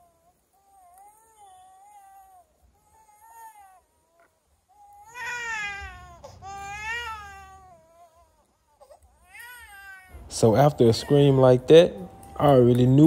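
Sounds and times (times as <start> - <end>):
toddler screaming and crying: 0.7 - 10.2.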